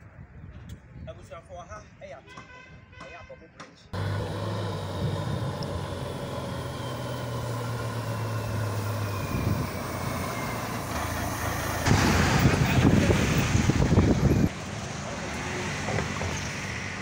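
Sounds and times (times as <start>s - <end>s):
close passing traffic rush: 3.9s - 17.0s
truck diesel engine: 4.0s - 17.0s.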